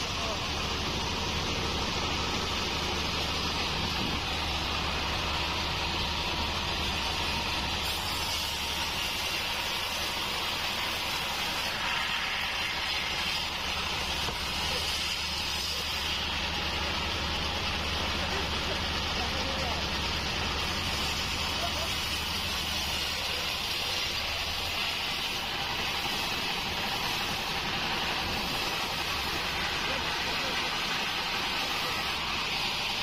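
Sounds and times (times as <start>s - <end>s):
bandsaw motor hum: 0.0s - 33.0s
saw blade hissing: 0.0s - 33.0s.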